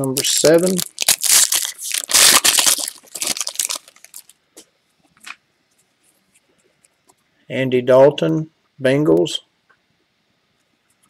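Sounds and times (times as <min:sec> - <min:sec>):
wrapper crinkling and tearing: 0:00.0 - 0:04.4.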